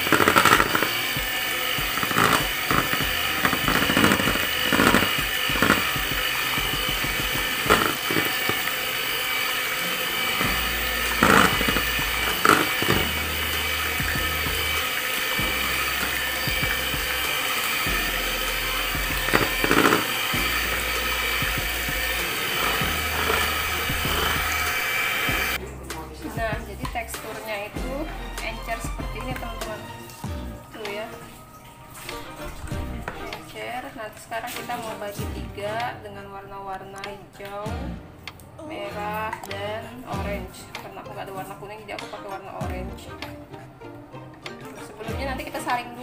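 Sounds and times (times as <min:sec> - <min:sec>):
beaters clattering in bowl: 0:00.0 - 0:25.6
electric hand mixer running: 0:00.0 - 0:25.6.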